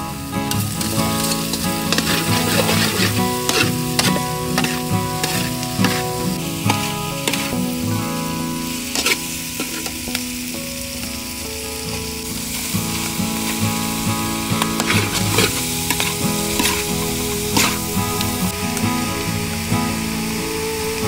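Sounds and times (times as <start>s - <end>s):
squid sizzling in hot oil: 0.0s - 21.0s
spatula scraping metal pan: 0.8s - 7.7s, 8.6s - 10.1s, 14.6s - 18.5s.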